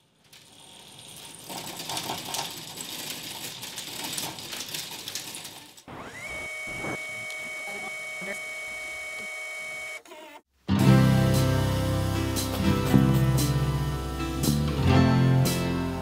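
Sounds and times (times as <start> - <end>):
roller shade rattling and clicking: 0.0 - 5.9
music with sustained tones: 10.7 - 16.0.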